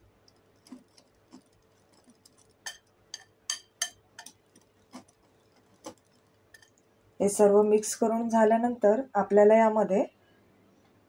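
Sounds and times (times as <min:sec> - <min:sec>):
whisk clicking against glass bowl: 0:00.3 - 0:06.7.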